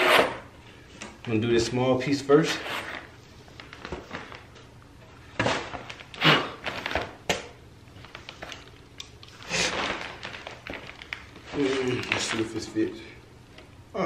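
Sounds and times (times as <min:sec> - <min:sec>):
plastic sheeting crinkling: 0:05.3 - 0:07.2, 0:07.9 - 0:13.0.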